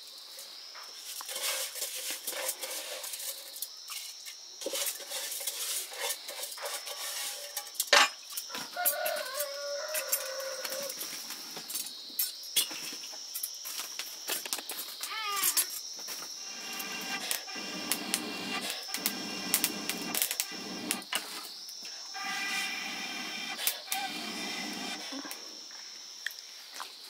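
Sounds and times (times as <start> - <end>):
dishes and utensils clinking: 3.9 - 8.3
rooster crowing: 8.5 - 11.0.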